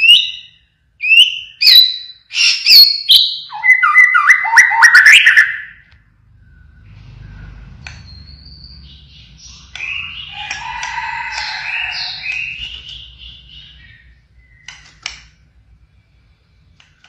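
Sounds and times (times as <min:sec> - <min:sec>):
bird singing varied whistles: 0:00.0 - 0:05.8.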